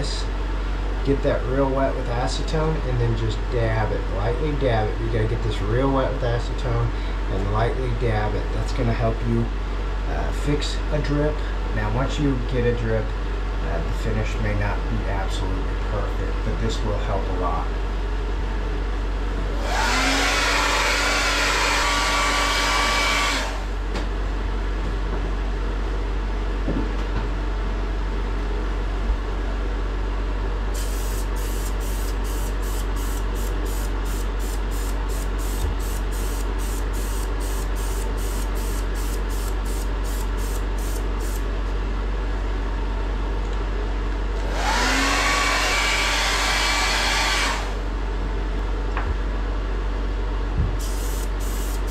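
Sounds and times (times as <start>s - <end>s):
hair dryer running: 19.5s - 23.8s, 44.4s - 47.9s.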